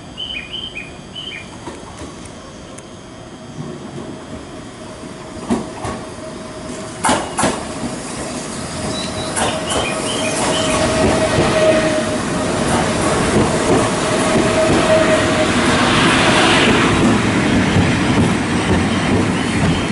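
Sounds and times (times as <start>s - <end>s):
train rolling slowly: 0.0s - 19.9s
thin steady wheel squeal: 7.2s - 12.2s
wheels clacking over rail joints: 8.8s - 11.7s, 12.6s - 15.2s.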